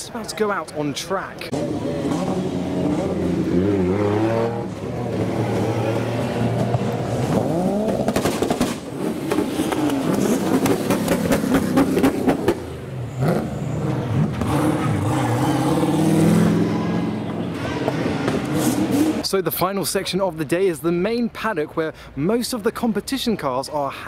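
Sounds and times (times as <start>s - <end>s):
car engines revving: 1.4s - 19.4s
sharp cracks: 7.8s - 12.6s.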